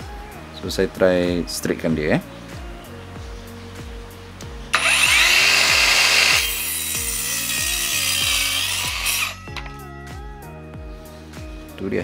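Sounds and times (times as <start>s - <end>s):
circular saw cutting wood: 4.8s - 9.5s.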